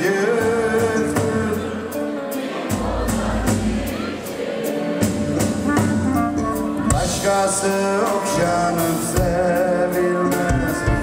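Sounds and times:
clarinet melody: 0:05.4 - 0:11.0.

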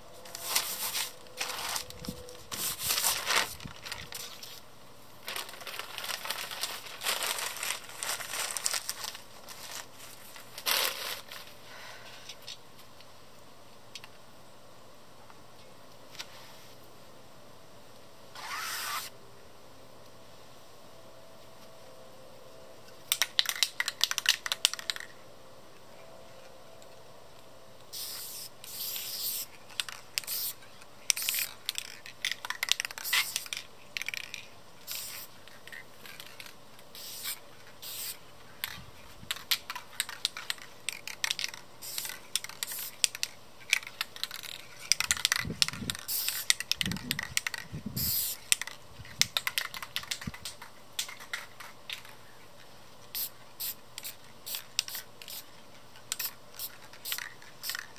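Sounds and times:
spray paint can hissing: 0:18.4 - 0:19.1, 0:27.9 - 0:35.3, 0:36.2 - 0:38.2, 0:39.3 - 0:48.7, 0:53.1 - 0:55.5, 0:56.1 - 0:57.9.

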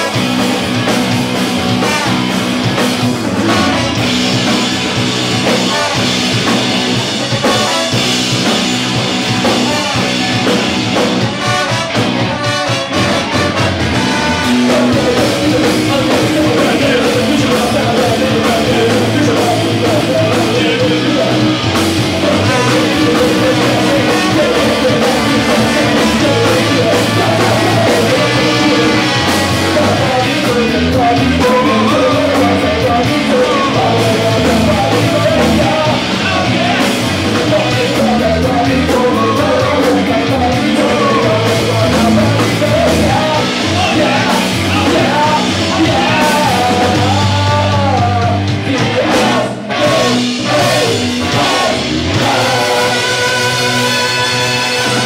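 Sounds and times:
bass guitar: 0:00.0 - 0:55.0
drum kit: 0:00.0 - 0:55.0
electric guitar: 0:00.0 - 0:55.0
trumpet: 0:01.7 - 0:02.4, 0:03.5 - 0:04.0, 0:05.6 - 0:06.1, 0:07.4 - 0:08.2, 0:11.2 - 0:15.0, 0:49.8 - 0:55.0
saxophone: 0:11.2 - 0:14.9, 0:52.4 - 0:55.0.

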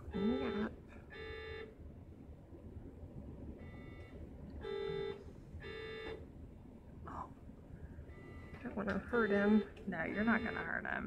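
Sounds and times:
patient monitor alarm beeping: 0:00.0 - 0:01.8, 0:03.6 - 0:06.2, 0:08.1 - 0:11.0
steady low hum: 0:00.0 - 0:11.0.

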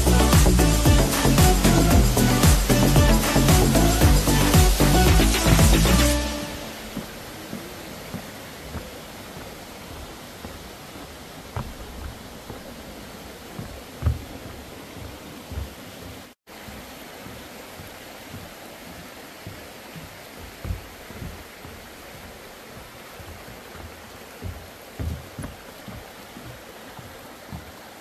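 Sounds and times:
rushing water: 0:00.0 - 0:28.0
low thumps on microphone: 0:13.6 - 0:15.8.

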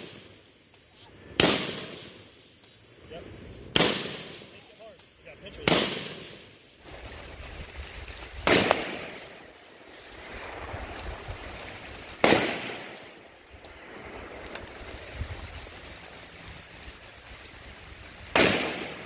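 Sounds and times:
rifle shots with echo: 0:01.4 - 0:02.2, 0:03.7 - 0:04.5, 0:05.6 - 0:06.4, 0:08.4 - 0:09.5, 0:12.2 - 0:13.4, 0:18.3 - 0:19.0
steady rushing noise: 0:06.8 - 0:19.0.

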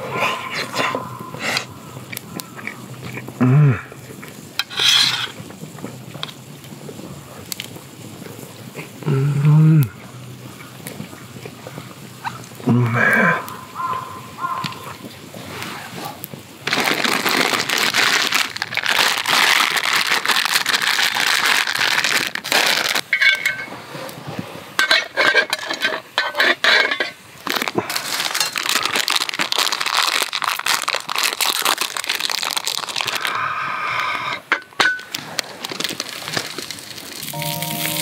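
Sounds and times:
twig fire crackling: 0:00.0 - 0:09.1, 0:09.8 - 0:12.7, 0:13.4 - 0:25.0, 0:27.3 - 0:33.4, 0:35.1 - 0:38.0
plastic packaging crinkling: 0:16.6 - 0:23.1, 0:27.4 - 0:33.4, 0:35.1 - 0:38.0.

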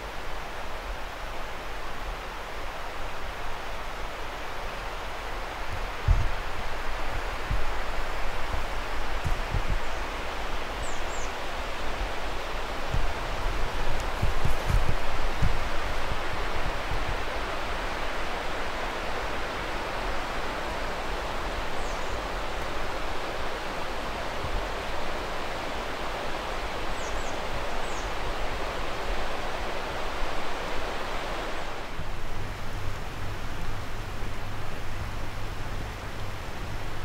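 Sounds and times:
rushing outdoor ambient noise: 0:00.0 - 0:37.0.

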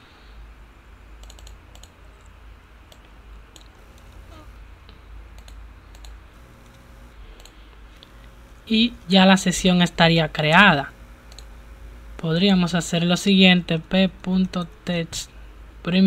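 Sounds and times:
low steady hum: 0:00.0 - 0:16.0
keyboard keys clicking: 0:01.2 - 0:02.3
computer mouse clicks: 0:01.2 - 0:04.3, 0:05.4 - 0:06.8, 0:07.4 - 0:08.4, 0:11.2 - 0:11.5.

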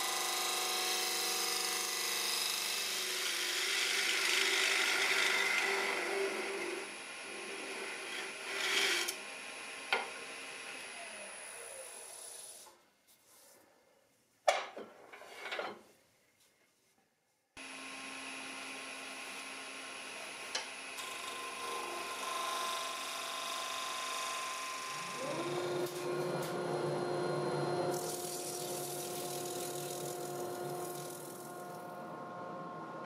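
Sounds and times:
wood lathe humming: 0:00.0 - 0:12.5, 0:17.6 - 0:33.0
turning tool scraping wood: 0:07.5 - 0:09.1.

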